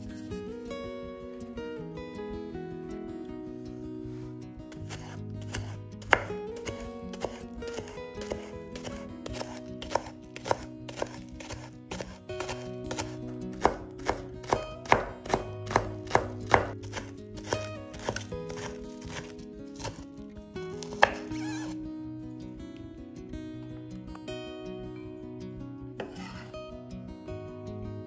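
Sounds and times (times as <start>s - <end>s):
soft background music: 0.0s - 28.0s
knife chopping on wooden board: 4.8s - 20.0s, 20.8s - 21.7s, 26.0s - 26.4s.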